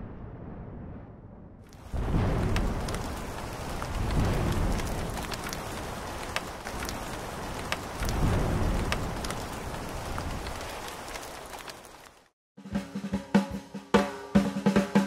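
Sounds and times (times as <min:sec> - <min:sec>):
low thunder rumbles: 0:00.0 - 0:12.2
sharp raindrop ticks: 0:01.7 - 0:12.3
steady rain: 0:01.7 - 0:12.4.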